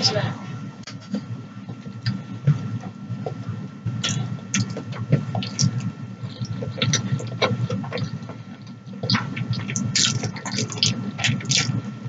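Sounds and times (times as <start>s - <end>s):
low hum: 0.0s - 12.0s
wet chewing and slurping: 4.0s - 11.8s
mouth smacks and clicks: 5.4s - 8.3s, 9.0s - 11.8s.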